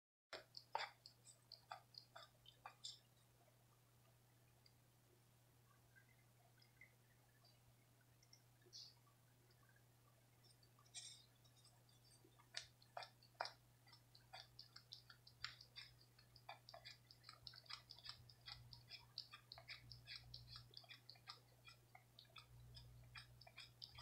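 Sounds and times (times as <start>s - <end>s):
cat licking with tongue clicks: 0.4s - 3.0s, 12.4s - 24.0s.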